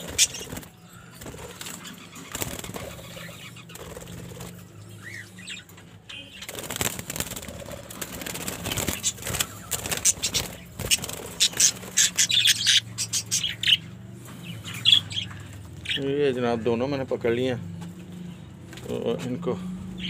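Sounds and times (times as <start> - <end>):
birds fluttering wings: 0.0 - 4.8, 6.3 - 12.6
bird chirp: 0.0 - 17.1.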